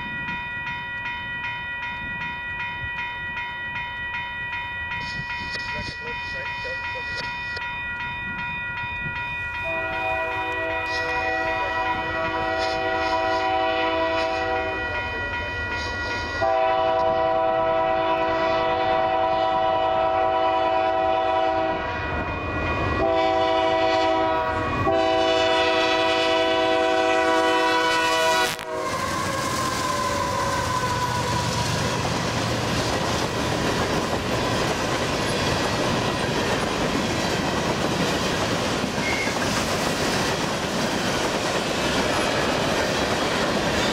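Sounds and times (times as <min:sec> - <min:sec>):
diesel locomotives passing: 0:00.0 - 0:43.9
train wheels clickety-clack: 0:04.9 - 0:07.7, 0:10.4 - 0:14.7, 0:15.4 - 0:17.3, 0:29.4 - 0:43.9
locomotive air horn blasts: 0:09.6 - 0:15.0, 0:16.4 - 0:22.0, 0:23.0 - 0:31.4.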